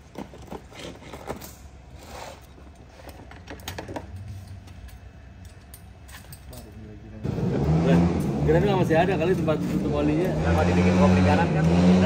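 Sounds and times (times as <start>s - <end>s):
metal tools clinking: 0.0s - 7.0s.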